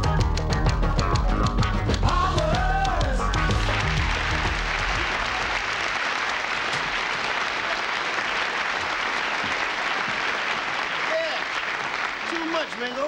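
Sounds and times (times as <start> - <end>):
music: 0.0 - 5.7
studio audience applauding: 2.0 - 13.0.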